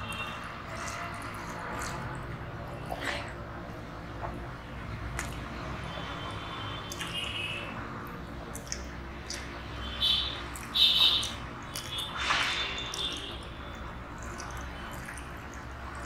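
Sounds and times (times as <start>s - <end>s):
wet chewing sounds: 0.0s - 16.0s.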